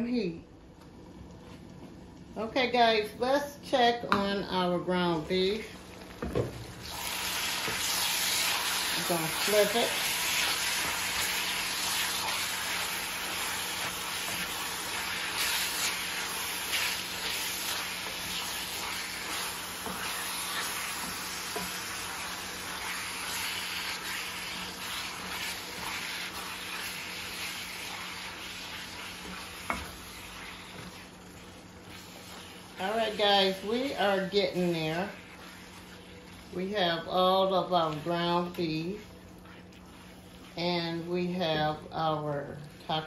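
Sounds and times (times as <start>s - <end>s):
meat sizzling in a skillet: 6.2s - 37.0s
spatula scraping a pan: 7.2s - 41.7s.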